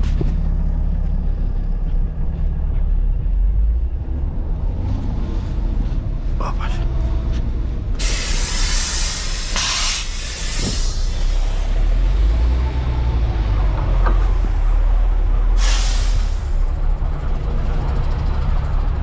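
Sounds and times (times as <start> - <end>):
diesel truck engine idling: 0.0 - 19.0
air brake hiss: 8.0 - 11.8, 15.6 - 16.6.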